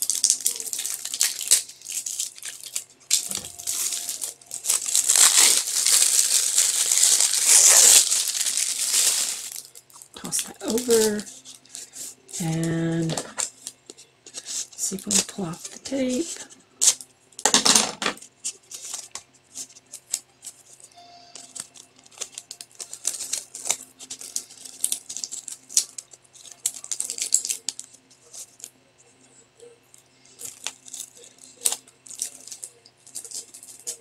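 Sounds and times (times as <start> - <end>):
packing tape peeling: 0.0 - 13.5, 21.3 - 28.6
plastic packaging crinkling: 0.0 - 28.8, 29.6 - 34.0.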